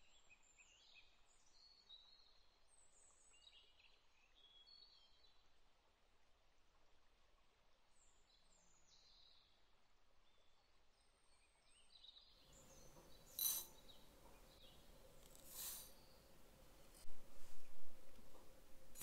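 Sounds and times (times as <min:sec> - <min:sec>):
faint bird chirps: 0:10.2 - 0:16.4.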